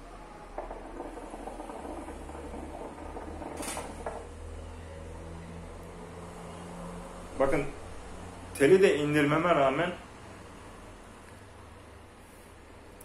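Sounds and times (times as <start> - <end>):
hookah water bubbling: 0.0 - 4.6
low gurgling hum: 0.0 - 4.6.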